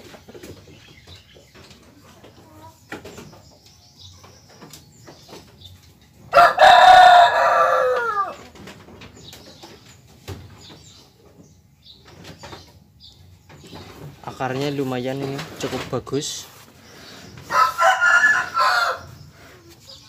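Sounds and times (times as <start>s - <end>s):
rooster crowing: 6.3s - 8.4s, 17.4s - 19.2s.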